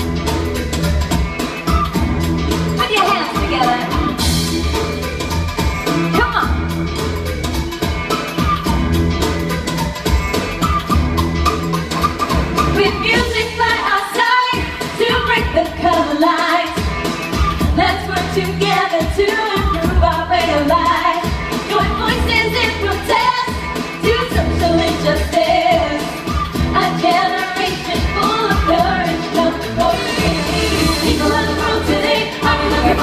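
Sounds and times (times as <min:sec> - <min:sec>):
heavy bass line: 0:00.0 - 0:02.9, 0:03.9 - 0:13.7, 0:28.8 - 0:33.0
drums: 0:00.0 - 0:33.0
keyboards: 0:00.0 - 0:33.0.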